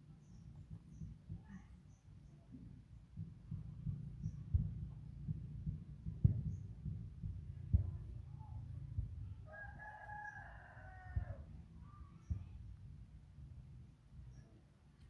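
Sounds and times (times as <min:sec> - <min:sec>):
rooster crowing: 0:09.4 - 0:11.5.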